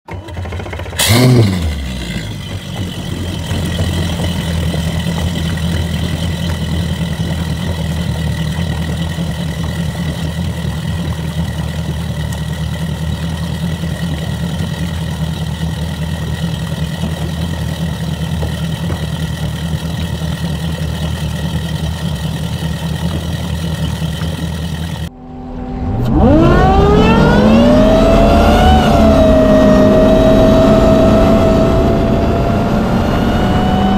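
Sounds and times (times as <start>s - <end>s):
outboard engine running: 0.0s - 25.2s
engine whine: 0.0s - 33.9s
engine revving hard: 1.0s - 2.8s, 25.2s - 33.9s.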